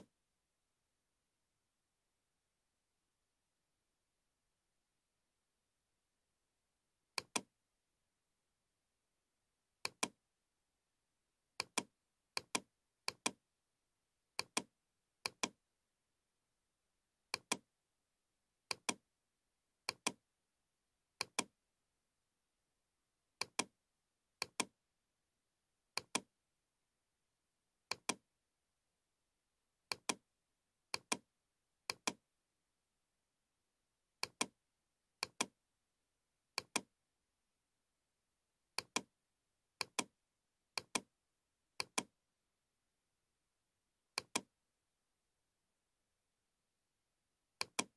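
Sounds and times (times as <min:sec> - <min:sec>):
computer mouse clicks: 0:07.2 - 0:07.5, 0:09.8 - 0:10.2, 0:11.6 - 0:13.4, 0:14.4 - 0:15.6, 0:17.3 - 0:17.7, 0:18.7 - 0:19.0, 0:19.8 - 0:20.2, 0:21.2 - 0:21.5, 0:23.4 - 0:23.7, 0:24.4 - 0:24.8, 0:26.0 - 0:26.3, 0:27.9 - 0:28.2, 0:29.9 - 0:30.2, 0:30.9 - 0:31.2, 0:31.9 - 0:32.2, 0:34.2 - 0:34.6, 0:35.2 - 0:35.6, 0:36.6 - 0:36.9, 0:38.8 - 0:39.1, 0:39.8 - 0:40.1, 0:40.7 - 0:41.1, 0:41.8 - 0:42.1, 0:44.1 - 0:44.5, 0:47.6 - 0:47.9.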